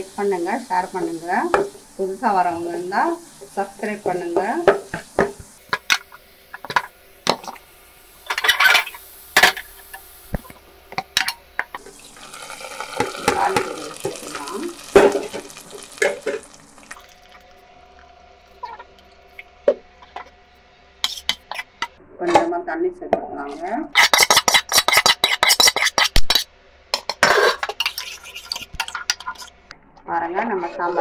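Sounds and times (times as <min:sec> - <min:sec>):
hot oil pouring and sizzling: 0:00.0 - 0:17.6, 0:27.6 - 0:29.6
ladle clinking and scraping on pot: 0:24.0 - 0:29.5.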